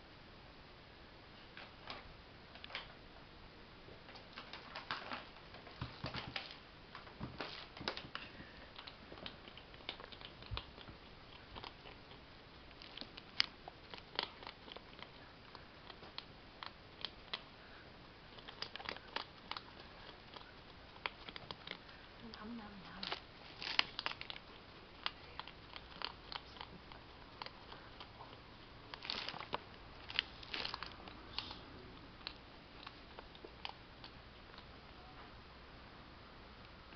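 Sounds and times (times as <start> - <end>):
hedgehog crunching food: 7.4 - 35.0.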